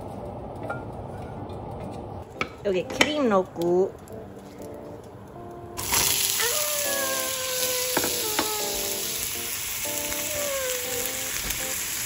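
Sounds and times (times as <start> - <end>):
tomatoes sizzling in hot oil: 5.8 - 12.0.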